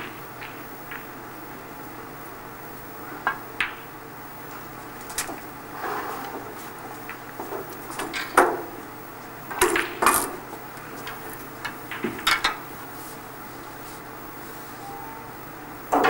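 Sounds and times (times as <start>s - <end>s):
snooker balls clicking: 0.0s - 1.2s, 3.2s - 4.0s, 6.2s - 12.7s.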